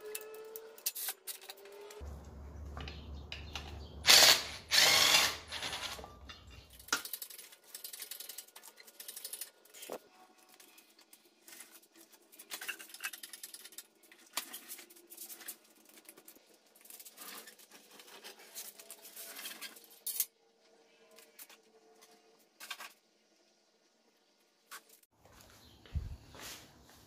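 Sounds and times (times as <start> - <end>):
metal tools clinking: 2.8 - 20.4.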